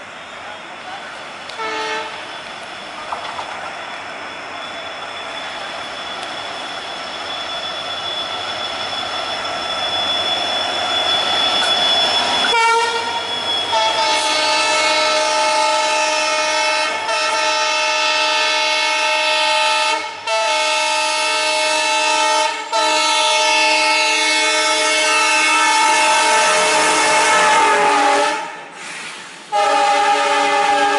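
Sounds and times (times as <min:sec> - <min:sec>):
train wheels rolling: 0:00.0 - 0:16.0
locomotive horn blasts: 0:01.5 - 0:02.2, 0:12.5 - 0:28.6, 0:29.5 - 0:30.9.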